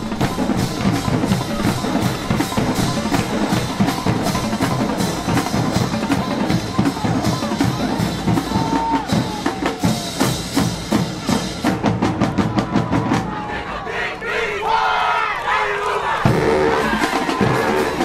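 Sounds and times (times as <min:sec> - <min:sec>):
bass drums: 0:00.0 - 0:13.4
snare drums: 0:00.0 - 0:14.1, 0:16.1 - 0:18.0.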